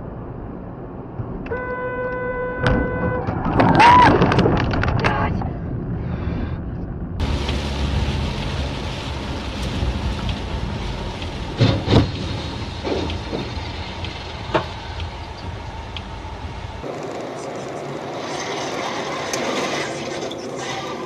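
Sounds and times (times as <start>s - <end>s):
rain: 7.2s - 21.0s
tyre noise on wet road: 7.2s - 21.0s.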